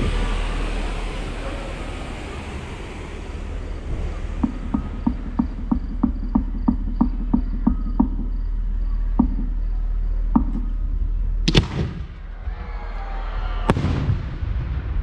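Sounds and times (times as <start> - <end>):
faint knocks: 4.4 - 8.4, 9.2 - 9.6, 10.4 - 10.8
firework sharp bang: 11.5 - 12.3, 13.7 - 15.0.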